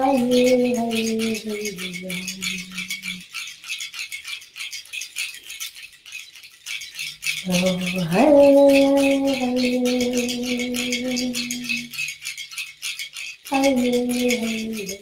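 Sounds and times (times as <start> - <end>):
woman singing wordless note: 0.0 - 3.2, 7.5 - 11.9, 13.5 - 15.0
seed-pod rattle shaken: 0.0 - 15.0.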